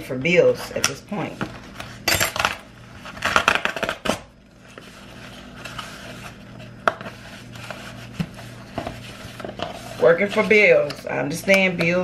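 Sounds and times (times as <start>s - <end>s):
box packaging crackling and scraping: 2.9s - 10.9s.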